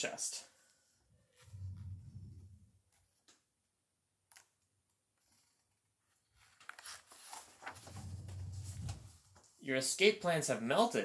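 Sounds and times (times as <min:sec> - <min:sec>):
book pages rustling: 0:05.2 - 0:09.5.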